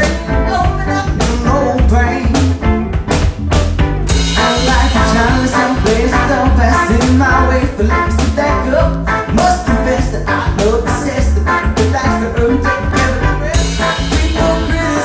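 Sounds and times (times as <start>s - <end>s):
man singing: 0.0s - 2.6s, 4.1s - 15.0s
electric guitar strumming: 0.0s - 15.0s
steady drum beat: 0.0s - 15.0s.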